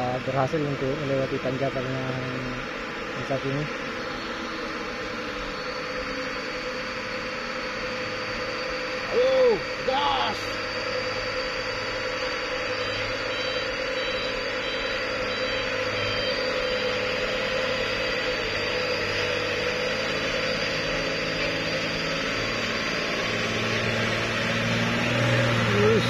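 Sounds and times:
truck diesel engine at low revs: 0.0s - 26.0s.

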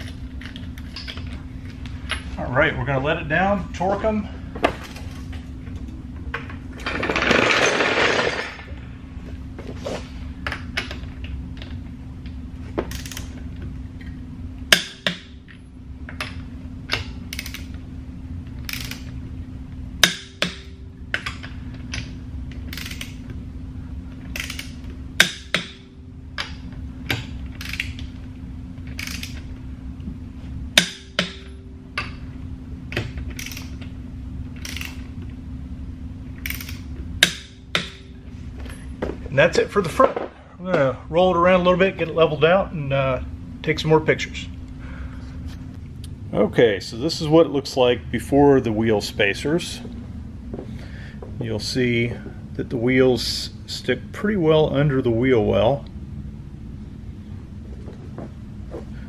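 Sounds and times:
steady low hum: 0.0s - 59.0s
torque wrench ratcheting: 12.9s - 13.3s, 16.9s - 17.8s, 18.7s - 19.1s, 22.7s - 23.2s, 24.3s - 25.6s, 27.6s - 28.0s, 28.9s - 29.4s, 33.3s - 33.8s, 34.6s - 35.0s, 36.4s - 37.4s
torque wrench clicks: 17.3s - 17.7s, 18.7s - 19.1s, 22.7s - 23.2s, 24.3s - 24.8s, 27.6s - 28.0s, 29.0s - 29.4s, 33.4s - 33.7s, 34.6s - 35.0s, 36.4s - 37.4s.

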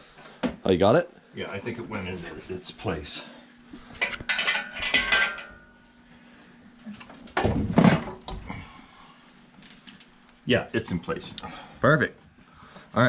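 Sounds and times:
metal tools clinking: 4.0s - 5.8s.

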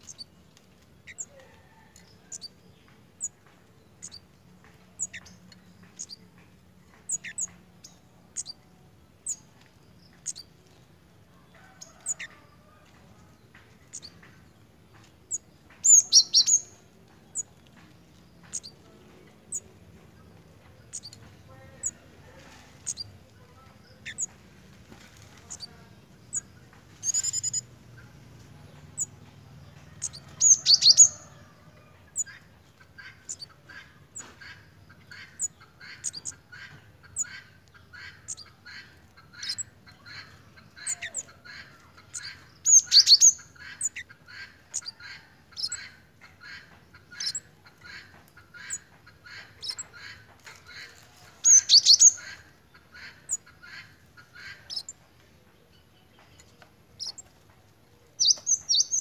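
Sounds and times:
bird chipping calls: 0.0s - 0.3s, 1.0s - 9.5s, 10.1s - 10.6s, 11.8s - 12.4s, 13.7s - 17.6s, 18.2s - 22.1s, 22.8s - 24.4s, 25.4s - 28.1s, 28.8s - 57.3s, 58.2s - 59.0s
high bird twittering bursts: 15.8s - 17.4s.

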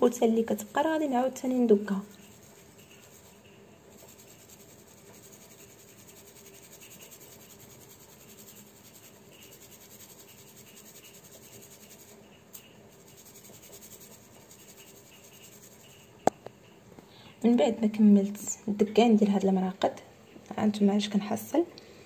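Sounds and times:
powder rustling through metal sieve: 0.0s - 16.2s.

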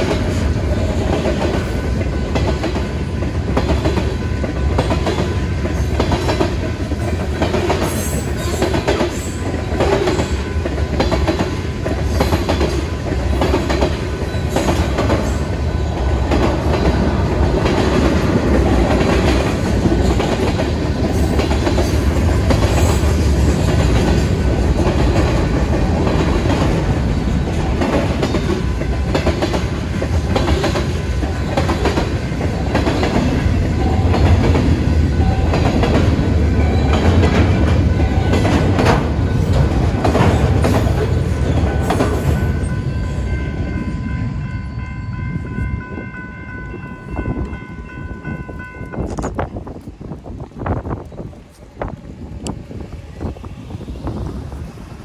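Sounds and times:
freight train rumbling past: 0.0s - 55.0s
crossing bell ringing: 32.2s - 35.9s, 36.5s - 39.9s, 41.0s - 49.7s.

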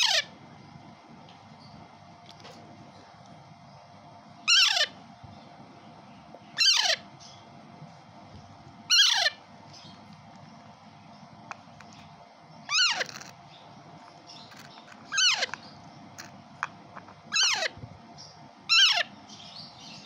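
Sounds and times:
parakeet chick begging squawks: 0.0s - 0.4s, 4.4s - 5.0s, 6.5s - 7.4s, 8.9s - 10.0s, 12.6s - 13.6s, 14.3s - 16.3s, 17.2s - 20.0s.

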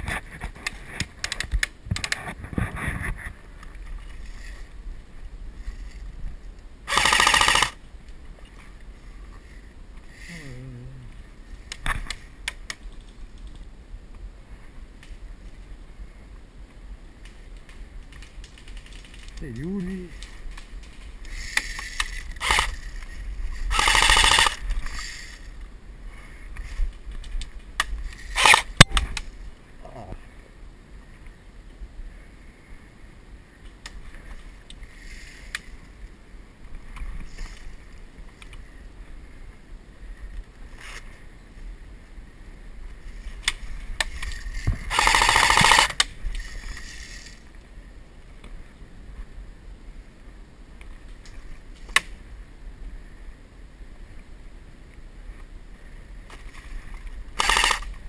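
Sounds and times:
brushing and rustling: 2.2s - 6.5s, 46.2s - 47.6s
loud bursts: 6.9s - 7.8s, 23.7s - 24.6s, 44.9s - 46.0s.

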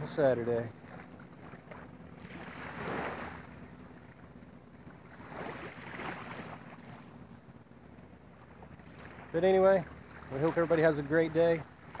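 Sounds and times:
small waves lapping: 0.0s - 12.0s.

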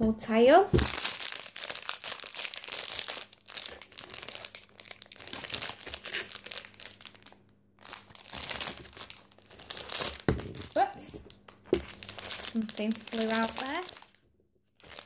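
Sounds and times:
plastic wrapper crackling: 0.7s - 15.0s.

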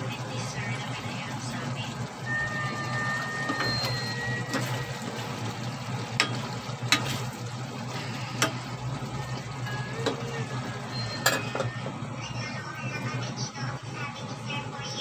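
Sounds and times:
spoon stirring in a pot: 6.1s - 8.7s
spoon clinking against metal pot: 9.6s - 10.2s, 11.0s - 11.7s.

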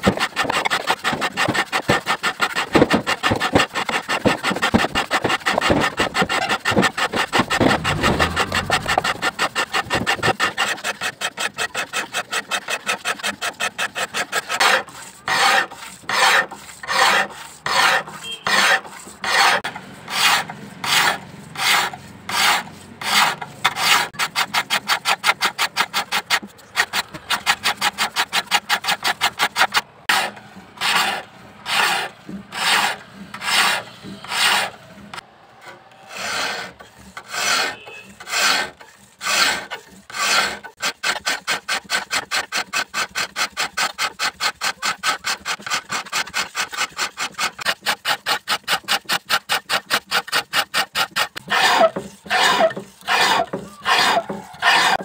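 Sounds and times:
hand file rasping on steel blade: 0.0s - 55.0s.

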